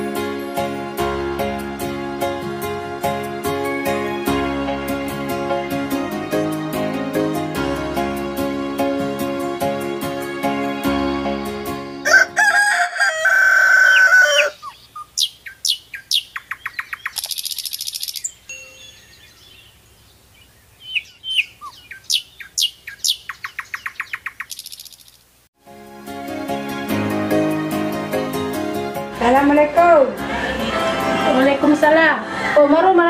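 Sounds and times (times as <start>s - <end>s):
background music: 0.0s - 13.0s, 25.6s - 33.0s
rooster crowing: 12.0s - 14.8s
small birds chirping: 14.4s - 25.4s.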